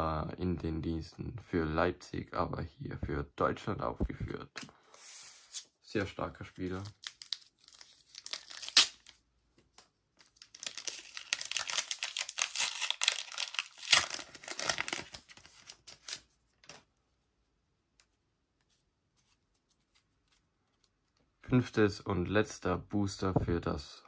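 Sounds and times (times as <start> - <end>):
wrapper crackling and rustling: 6.6 - 9.2, 10.2 - 16.8
wrapper tearing: 6.7 - 9.2, 10.2 - 16.8.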